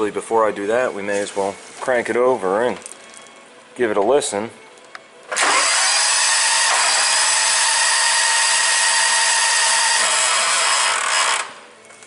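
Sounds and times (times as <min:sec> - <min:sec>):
electric starter cranking engine: 0:05.3 - 0:11.6.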